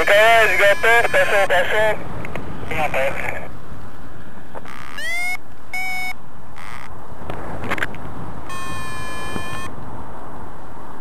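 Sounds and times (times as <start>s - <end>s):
variometer beeping: 0.0s - 1.4s, 4.7s - 6.9s, 8.5s - 9.7s
wind on microphone: 6.6s - 11.0s.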